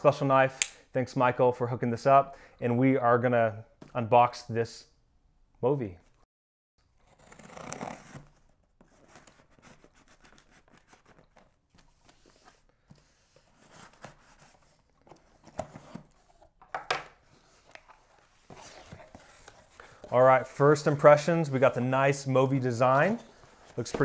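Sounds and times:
cardboard rustling: 7.0s - 24.0s.

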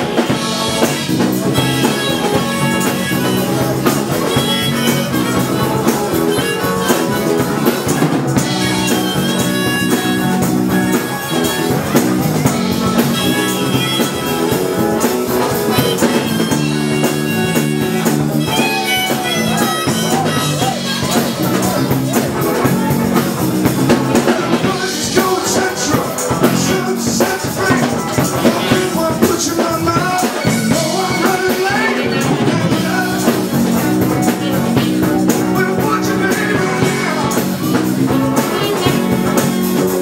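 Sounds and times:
long held lead notes: 0.0s - 27.2s
guitar: 0.0s - 40.0s
steady drum beat: 0.0s - 40.0s.

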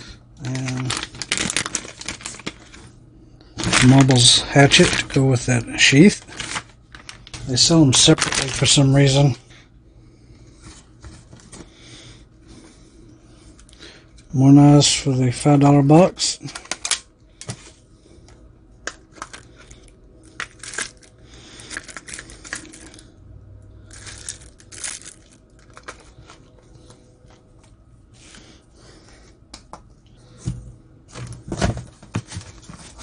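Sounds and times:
packing peanuts and cardboard rustling: 0.0s - 3.0s, 3.6s - 9.4s, 16.0s - 17.7s, 18.9s - 23.0s, 23.9s - 26.5s, 31.1s - 33.0s.

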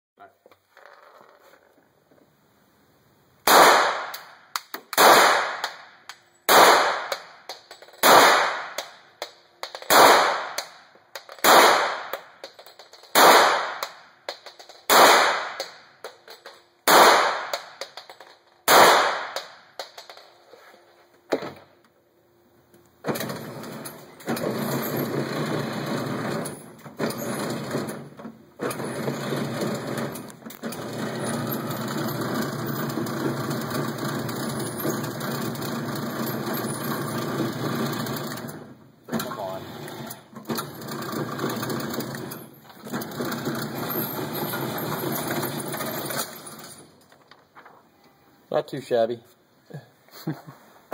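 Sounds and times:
pistol shots echoing: 3.5s - 4.3s, 4.9s - 5.8s, 6.5s - 7.4s, 8.0s - 9.0s, 9.8s - 10.8s, 11.4s - 12.3s, 13.1s - 14.0s, 14.9s - 15.8s, 16.8s - 17.8s, 18.7s - 19.6s
electric target carrier running: 23.0s - 46.8s.

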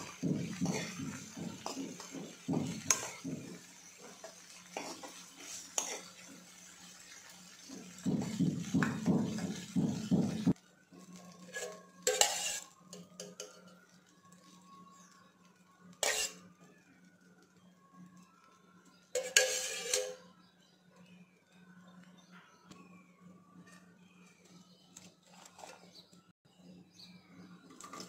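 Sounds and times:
metal spoon scraping a pan: 0.0s - 8.7s, 11.1s - 13.7s, 15.9s - 16.6s, 19.2s - 20.3s.

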